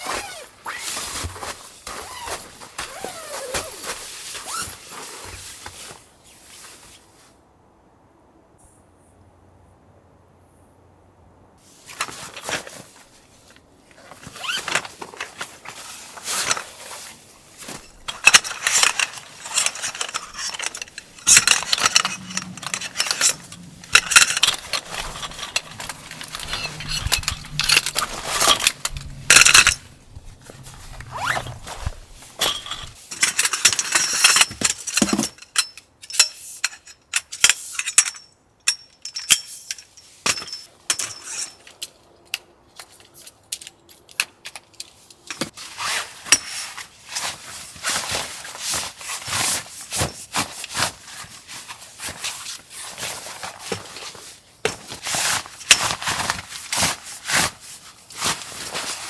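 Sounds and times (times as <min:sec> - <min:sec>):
tent fabric rustling: 0:00.0 - 0:07.4, 0:11.6 - 0:33.0, 0:45.5 - 0:59.0.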